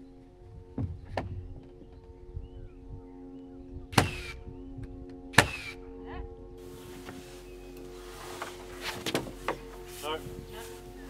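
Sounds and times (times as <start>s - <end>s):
background music: 0.0s - 11.0s
nail gun shots: 4.0s - 4.4s, 5.4s - 5.8s.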